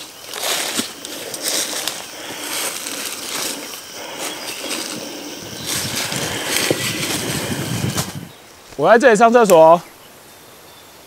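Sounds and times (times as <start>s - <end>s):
footsteps crunching through dry leaves: 0.0s - 8.8s.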